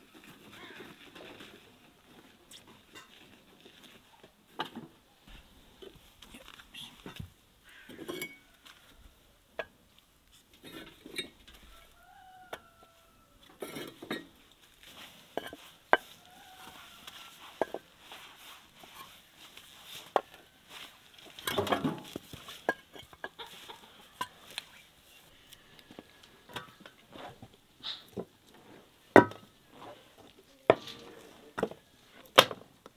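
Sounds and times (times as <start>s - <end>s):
chickens clucking: 23.1s - 24.6s.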